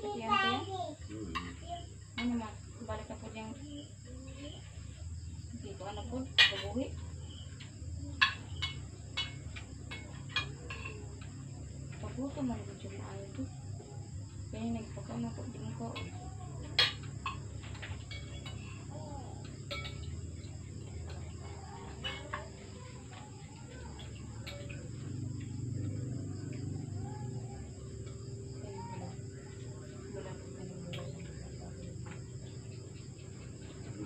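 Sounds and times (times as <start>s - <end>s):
crickets and insects chirping: 0.0s - 34.0s
cutlery clinking on plates: 16.0s - 25.9s.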